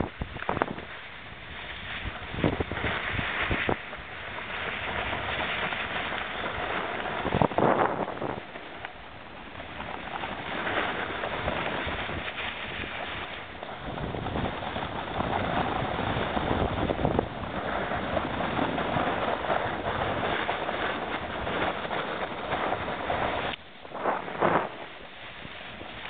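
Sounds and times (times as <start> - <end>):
snowboard scraping over snow: 0.0 - 26.0
wind on microphone: 0.0 - 26.0.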